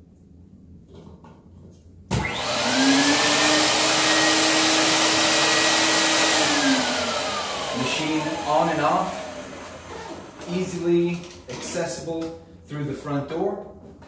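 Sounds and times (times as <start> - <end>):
turbine whining: 2.2 - 10.9.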